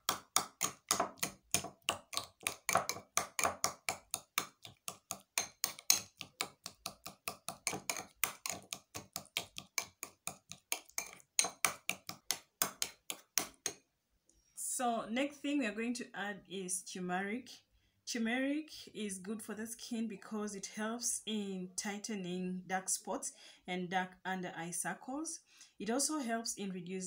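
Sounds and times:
spoon tapping glass bowl: 0.0 - 13.8.

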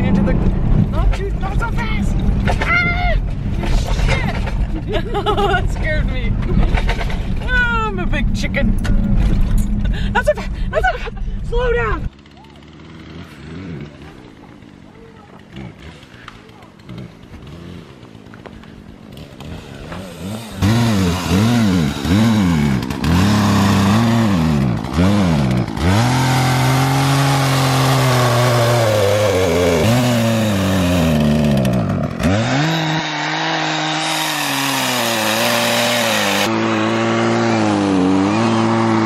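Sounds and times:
chainsaw cutting log: 11.8 - 39.0.

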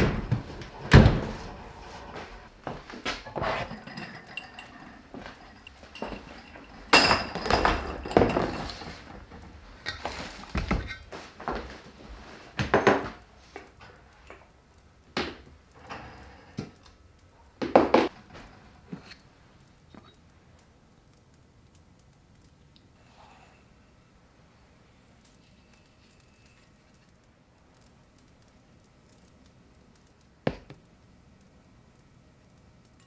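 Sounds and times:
dishes and utensils clinking: 0.7 - 11.3.

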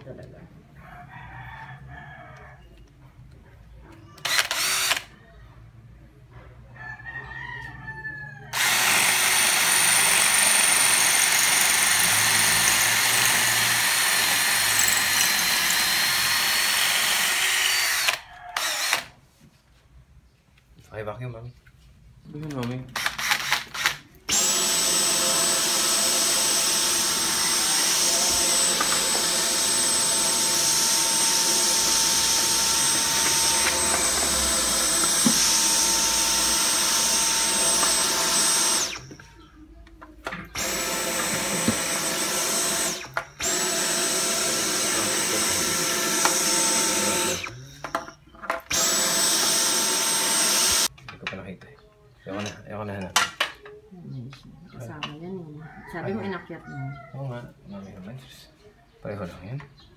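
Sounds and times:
vacuum cleaner motor whine: 24.3 - 39.0, 40.6 - 47.6.

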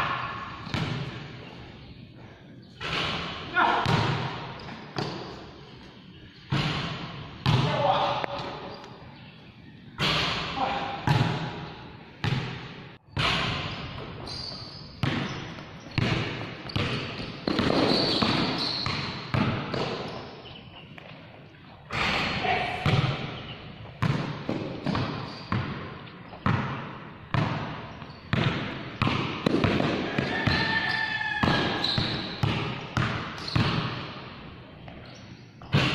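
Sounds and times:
basketball bouncing on concrete: 0.6 - 1.2, 2.8 - 5.4, 6.5 - 8.6, 12.2 - 14.2, 15.0 - 20.2, 21.9 - 23.4, 24.0 - 34.1.

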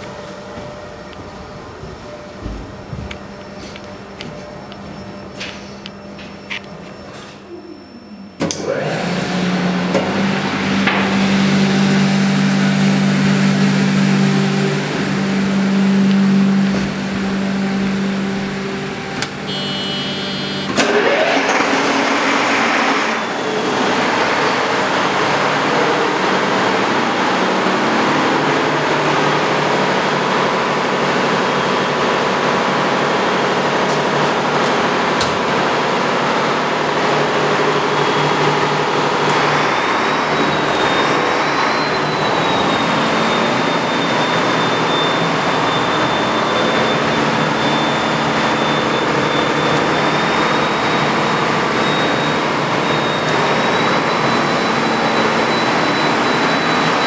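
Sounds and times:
diesel engine starting and running: 0.0 - 57.0
engine-room machinery hum: 0.0 - 57.0
high buzzer: 19.4 - 20.8.

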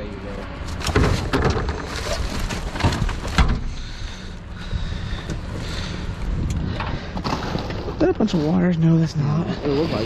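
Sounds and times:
cardboard rustling in metal dumpster: 0.7 - 3.6
steady low rumble: 1.8 - 10.0.

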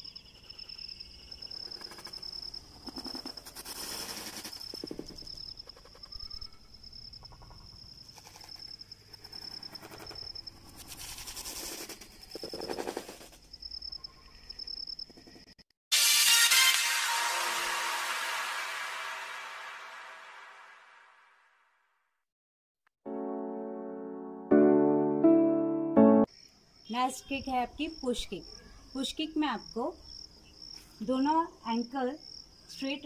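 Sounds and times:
insects chirring: 0.0 - 15.6, 26.3 - 33.0
loud music: 15.9 - 21.1.

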